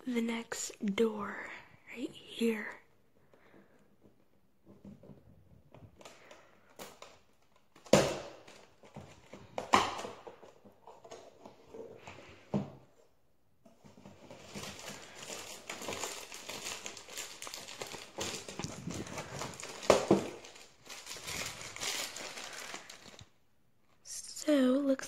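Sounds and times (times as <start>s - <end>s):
cardboard knocks and pops: 7.8s - 11.0s, 18.6s - 20.5s
packaging crinkling rustle: 13.8s - 24.1s.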